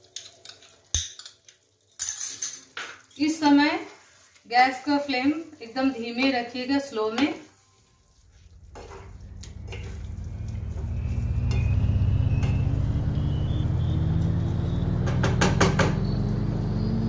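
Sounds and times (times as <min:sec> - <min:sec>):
low engine-like drone: 0:08.1 - 0:17.0.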